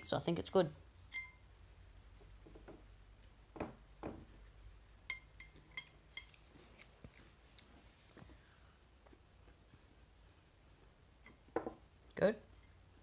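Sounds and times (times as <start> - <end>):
soft knocks: 3.5 - 4.3
cutlery clinking on plate: 5.1 - 6.4.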